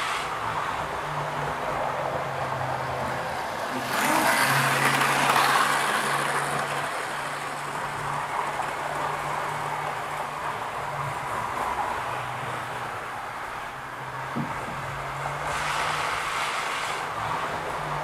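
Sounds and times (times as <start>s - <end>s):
model train wheels rattling on rail: 3.7s - 10.2s.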